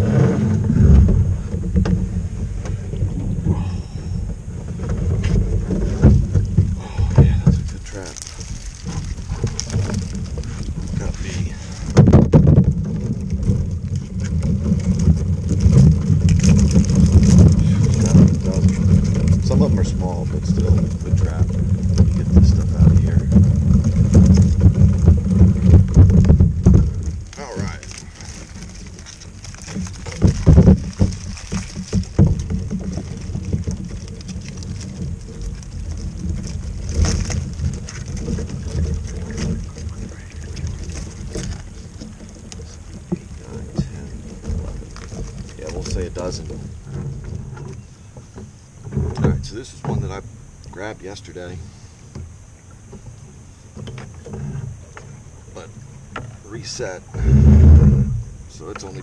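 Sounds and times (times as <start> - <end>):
wind rumbling on microphone: 0.0 - 59.0
wire crab trap rattling: 7.6 - 47.8.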